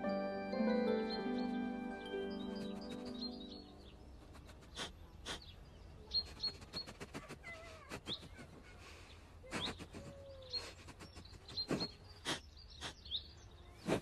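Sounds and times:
animal chirps and squeaks: 0:06.1 - 0:08.8, 0:09.5 - 0:14.0.

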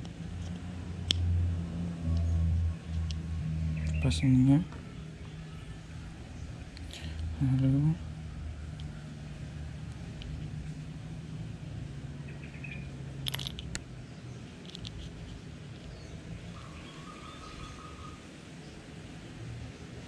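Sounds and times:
reel parts clicking: 0:13.2 - 0:13.8, 0:14.6 - 0:15.2.

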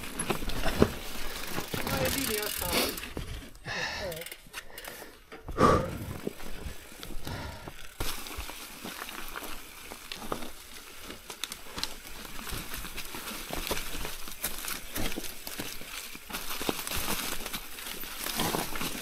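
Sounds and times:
tyres crunching through leaves: 0:00.0 - 0:03.4, 0:06.2 - 0:19.0
bike rattling clicks: 0:00.1 - 0:03.2, 0:03.8 - 0:05.4.

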